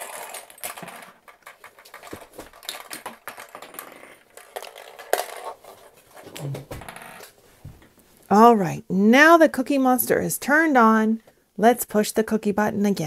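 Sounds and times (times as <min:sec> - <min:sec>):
small plastic toy clicks and knocks: 0:00.0 - 0:05.9.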